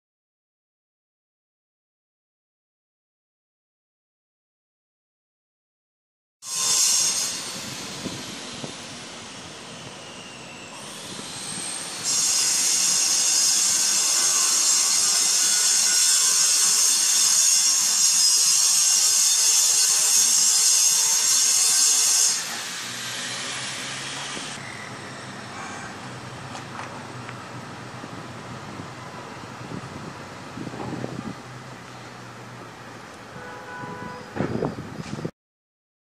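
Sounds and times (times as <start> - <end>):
power tool high-pitched hiss: 6.4 - 26.0.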